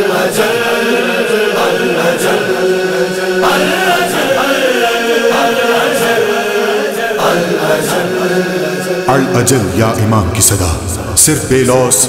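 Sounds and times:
man chanting a lament: 0.3 - 12.0.

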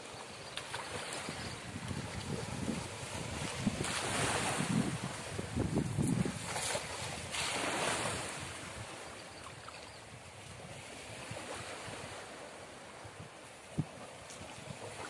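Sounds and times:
water lapping at bank: 0.0 - 15.0
wind buffeting microphone: 0.9 - 9.0.

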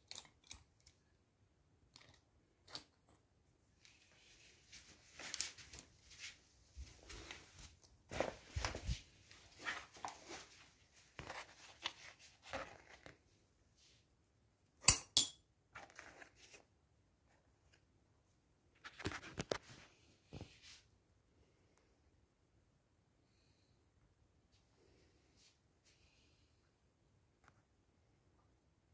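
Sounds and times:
handling rustles and knocks: 2.0 - 13.4.

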